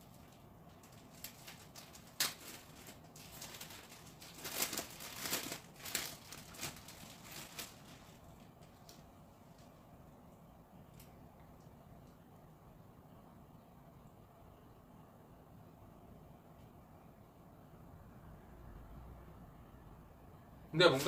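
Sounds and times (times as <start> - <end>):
plastic packaging crinkling: 0.0 - 9.1.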